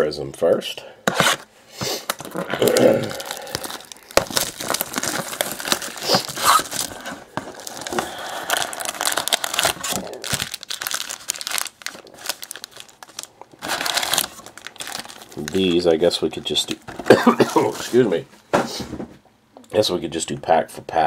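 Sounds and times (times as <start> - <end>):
foil packs rustling: 1.2 - 18.2
plastic shrink wrap crinkling: 2.1 - 18.2.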